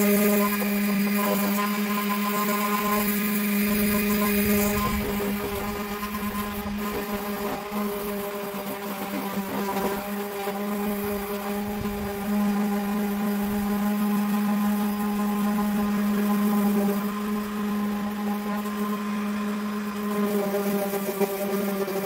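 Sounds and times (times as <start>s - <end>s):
small electric motor humming: 0.0s - 22.0s.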